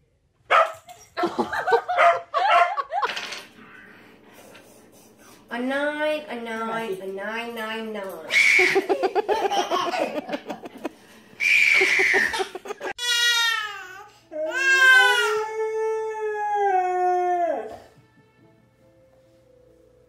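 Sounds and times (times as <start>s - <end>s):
faint music: 0.0s - 20.0s
baby crying: 11.4s - 16.2s.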